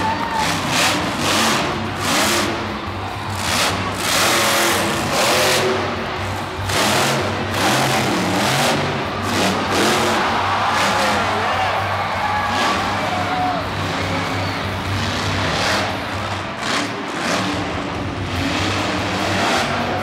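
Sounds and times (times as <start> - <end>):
monster truck engine revving: 0.0 - 20.0
stadium music: 0.0 - 20.0.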